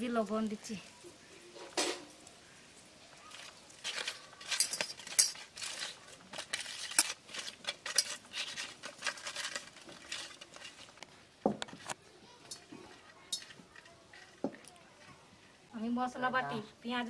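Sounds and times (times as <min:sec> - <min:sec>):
hands rubbing fish in steel bowl: 0:03.2 - 0:16.2.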